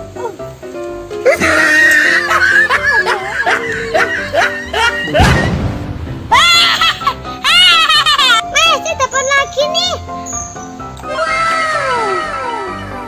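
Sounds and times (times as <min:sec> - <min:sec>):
background music: 0:00.0 - 0:13.0
woman crying out: 0:01.2 - 0:05.5, 0:06.3 - 0:08.4
woman laughing: 0:01.2 - 0:05.5, 0:06.3 - 0:08.4.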